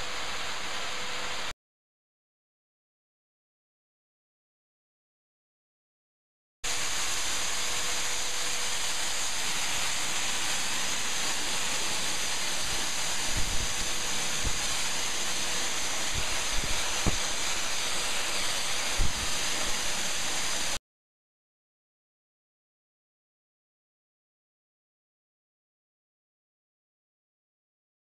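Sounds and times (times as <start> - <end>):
loud hiss with high whine: 0.0 - 1.5, 6.7 - 20.8.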